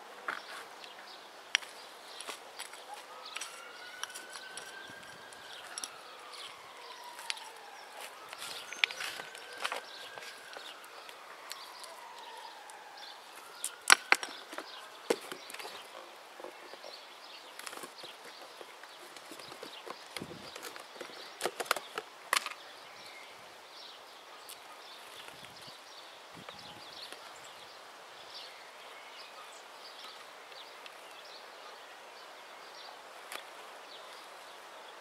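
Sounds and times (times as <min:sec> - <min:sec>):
scraping and rustling in soil: 0:00.2 - 0:22.0
sharp clicks of tool on stones: 0:13.6 - 0:15.8.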